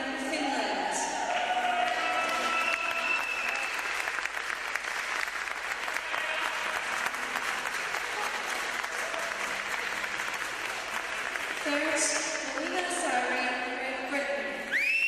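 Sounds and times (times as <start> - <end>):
audience applauding: 1.3 - 13.0.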